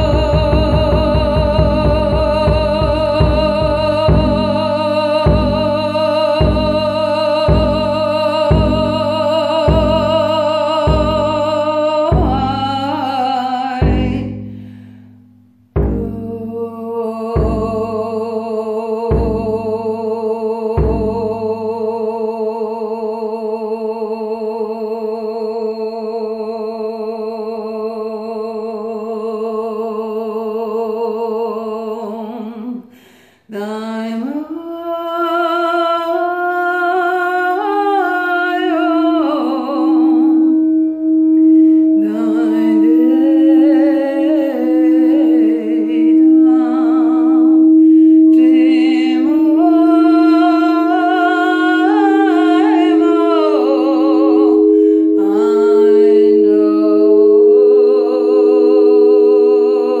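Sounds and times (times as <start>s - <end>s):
woman singing and humming: 0.0s - 60.0s
singing bowls ringing: 44.6s - 60.0s.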